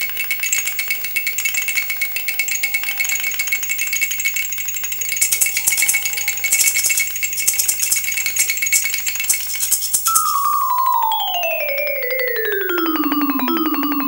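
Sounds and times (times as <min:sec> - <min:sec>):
steady high tone: 0:10.1 - 0:14.0.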